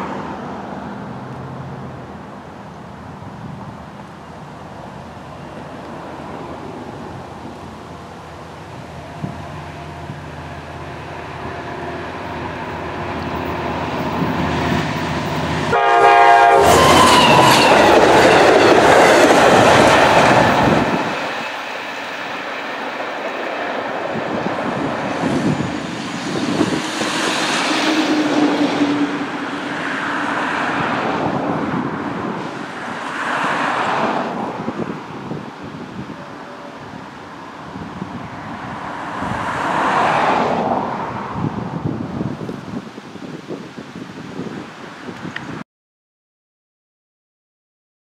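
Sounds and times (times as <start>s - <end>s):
diesel locomotive engine: 0.0s - 41.8s
cars passing: 0.0s - 43.6s
train wheels on rails: 5.0s - 37.0s
train horn blast: 9.1s - 13.8s, 15.5s - 18.0s.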